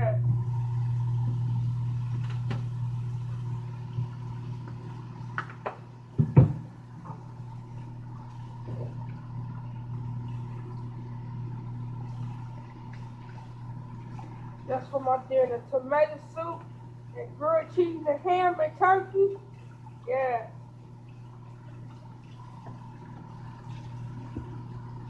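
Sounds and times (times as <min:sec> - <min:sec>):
microwave oven humming: 0:00.0 - 0:25.0.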